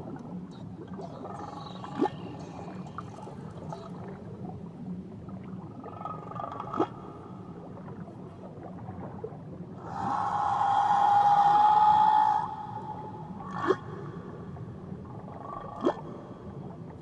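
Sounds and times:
whale calls: 0:01.0 - 0:04.1, 0:09.8 - 0:14.0
underwater hiss: 0:09.8 - 0:13.8.

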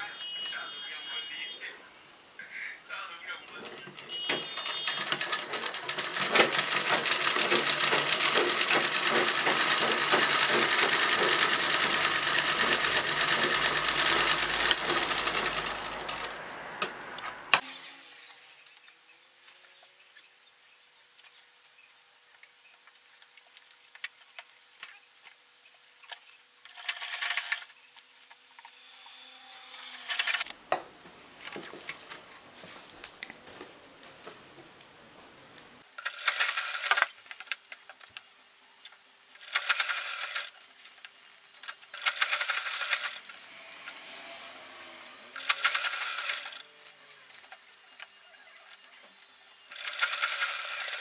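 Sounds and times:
sewing machine stitching: 0:03.5 - 0:16.5, 0:26.7 - 0:27.7, 0:29.7 - 0:30.4, 0:35.9 - 0:37.2, 0:39.4 - 0:40.6, 0:41.8 - 0:46.8, 0:49.7 - 0:51.0.

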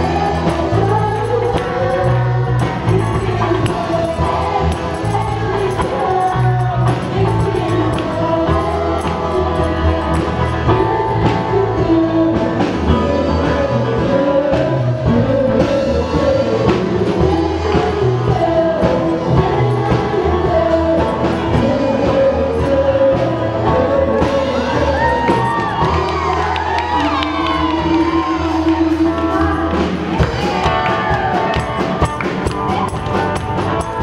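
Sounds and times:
man singing into microphone: 0:00.0 - 0:30.7
backing music with bass and drums: 0:00.0 - 0:34.0
people clapping along: 0:24.2 - 0:34.0.

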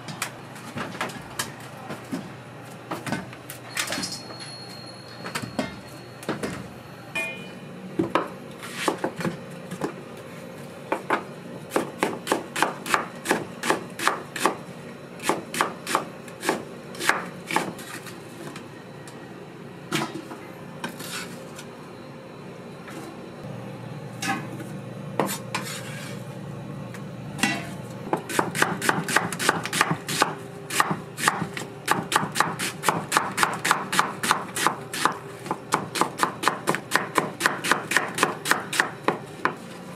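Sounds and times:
knife chopping on cutting board: 0:08.1 - 0:09.9, 0:10.9 - 0:14.6, 0:15.2 - 0:18.0, 0:25.2 - 0:25.8, 0:27.5 - 0:39.6.

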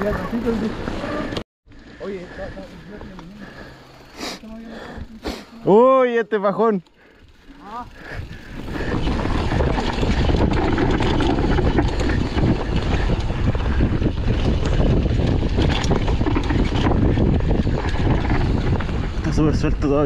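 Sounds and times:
tyres on loose ground: 0:00.0 - 0:20.0
bike rattling and knocking: 0:07.0 - 0:20.0
wind on microphone: 0:08.0 - 0:20.0.

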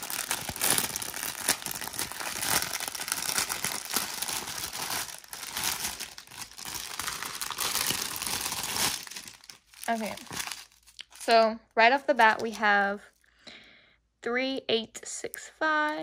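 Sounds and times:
plastic packaging crinkling: 0:00.0 - 0:11.4, 0:12.0 - 0:13.1.

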